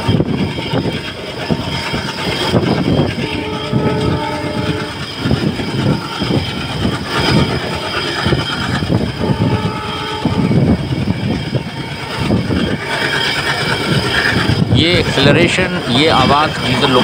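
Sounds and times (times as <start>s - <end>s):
diesel locomotive working hard: 0.0s - 17.0s
train wheels clattering on track: 0.0s - 17.0s.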